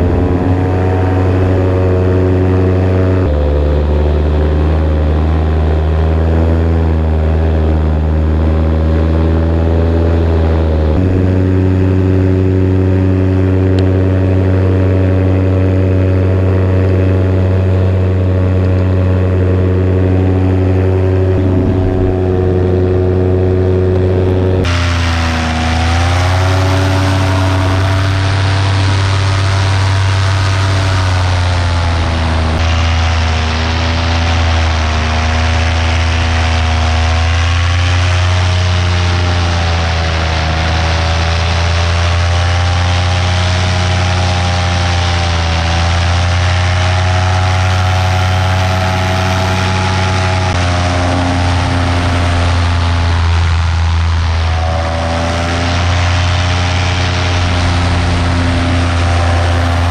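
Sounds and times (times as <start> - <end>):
wind noise: 0.0 - 3.3, 20.3 - 25.0
paramotor engine and propeller: 0.0 - 59.9.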